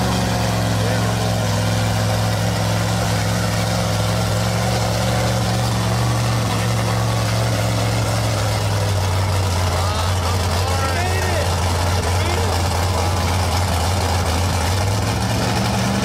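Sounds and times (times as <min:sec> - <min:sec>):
truck engine running: 0:00.0 - 0:16.0.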